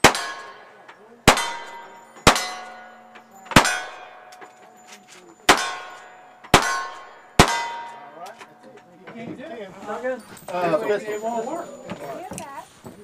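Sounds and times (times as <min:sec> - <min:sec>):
gunshots: 0:00.0 - 0:04.3, 0:05.5 - 0:08.2
steel target clanging: 0:00.0 - 0:08.7.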